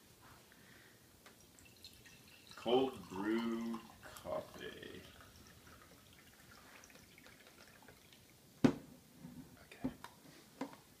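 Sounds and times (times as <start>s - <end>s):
coffee pouring into mug: 1.4s - 8.4s.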